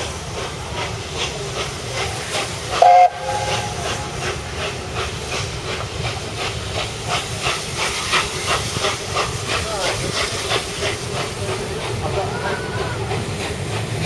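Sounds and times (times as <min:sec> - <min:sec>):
steady steam hiss: 0:00.0 - 0:14.0
steam locomotive exhaust beats: 0:00.0 - 0:14.0
steam whistle blast: 0:02.8 - 0:03.8.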